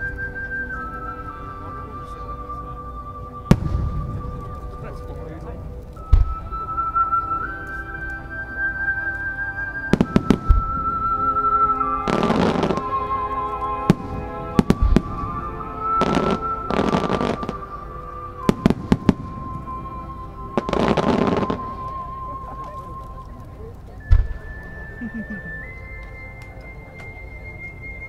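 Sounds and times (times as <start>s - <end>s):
music with long-held melody: 0.0s - 28.0s
fireworks bursting: 3.5s - 7.0s, 9.8s - 25.3s.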